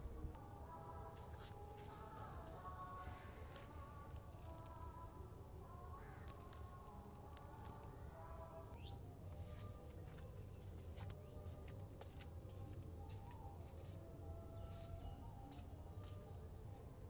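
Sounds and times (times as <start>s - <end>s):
faint bird chirps: 8.6s - 9.1s.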